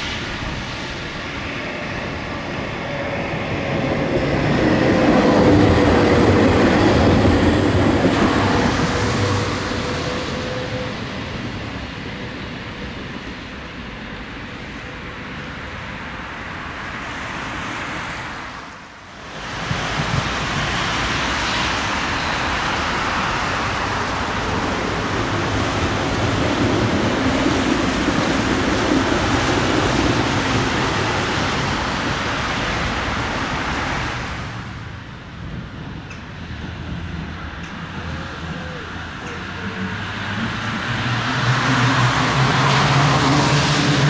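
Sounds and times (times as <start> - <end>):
tram wheels rushing on rail: 0.0 - 44.0.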